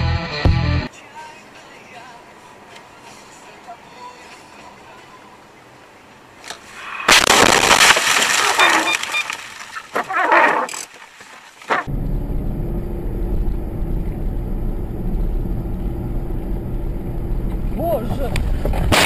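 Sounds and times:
vehicle crash: 7.0 - 10.7
crunching and breaking: 7.1 - 10.9
vehicle engine rumble: 11.8 - 19.0.

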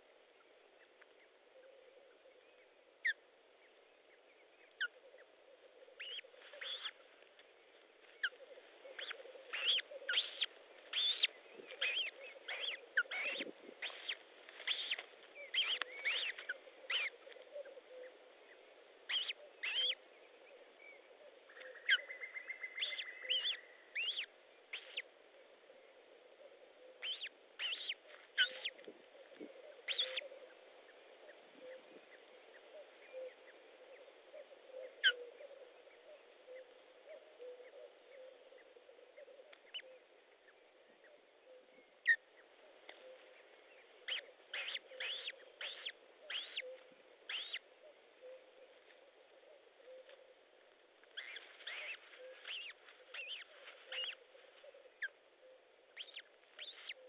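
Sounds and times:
faint steady hum: 0.0 - 57.0
bird whistled chirps: 9.0 - 13.4, 19.1 - 19.9, 44.1 - 46.7, 47.3 - 47.6.

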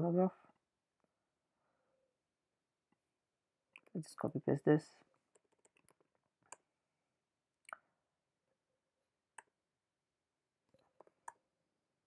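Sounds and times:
keystrokes and mouse clicks: 5.3 - 6.6.

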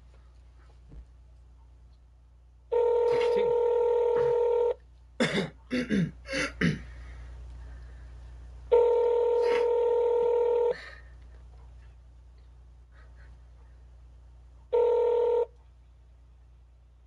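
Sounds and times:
telephone ringback tone: 2.7 - 4.8, 8.7 - 10.8, 14.7 - 15.5.

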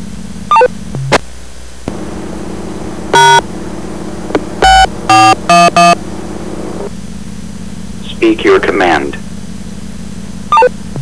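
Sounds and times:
radio static hiss: 1.0 - 7.2, 7.8 - 9.5.

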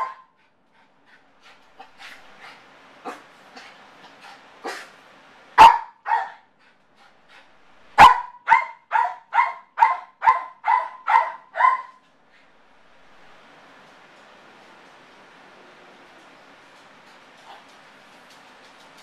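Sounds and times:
small dog barking and yipping: 0.0 - 0.3, 5.6 - 6.5, 8.0 - 12.1.

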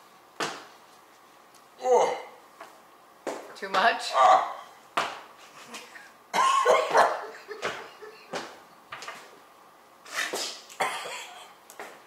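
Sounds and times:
man crying out in pain: 1.8 - 2.4.

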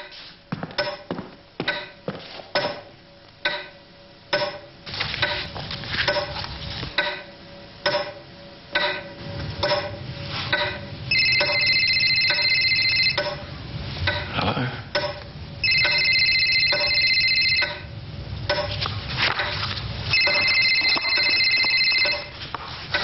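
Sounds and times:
mobile phone ringing: 11.1 - 13.4, 15.6 - 17.9, 20.1 - 22.4
wall clock ticking: 15.7 - 17.7.

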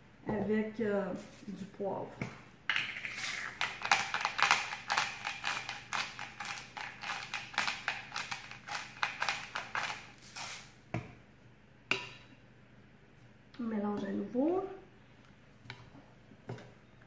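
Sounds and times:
pepper mill grinding: 2.8 - 10.7.

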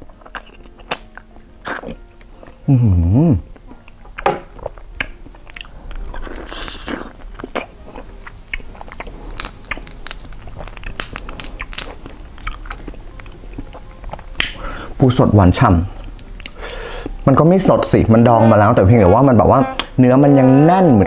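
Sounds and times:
crab shell crunching: 0.0 - 2.3, 3.6 - 14.6
wet chewing: 0.0 - 2.6, 3.5 - 14.7, 15.9 - 17.2.

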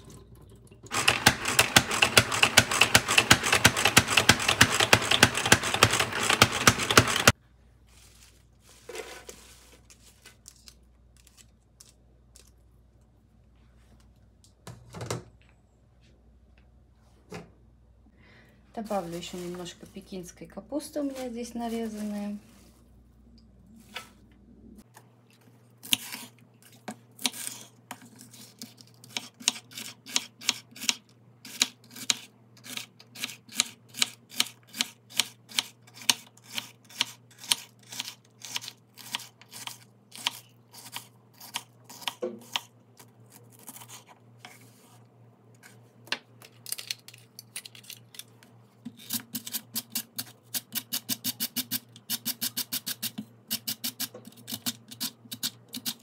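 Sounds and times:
mandoline slicing cucumber: 25.8 - 44.6.

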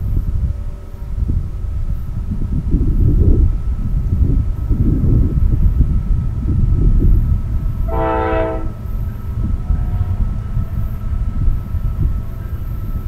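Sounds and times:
train rumbling: 0.0 - 13.0
locomotive horn blast: 7.9 - 8.8.

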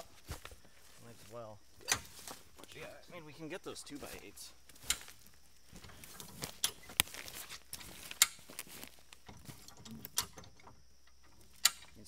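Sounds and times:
farm jack clacking: 5.8 - 12.0
small metal clicks: 6.1 - 7.1, 7.7 - 12.0.

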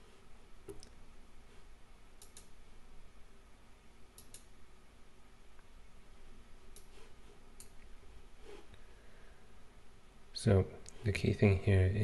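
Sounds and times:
computer mouse clicking: 2.2 - 2.6, 4.1 - 4.5, 6.7 - 7.9.

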